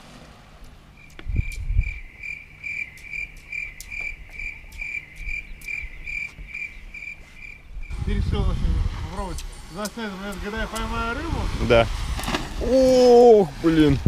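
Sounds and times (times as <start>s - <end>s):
cricket chirping: 1.0s - 8.1s.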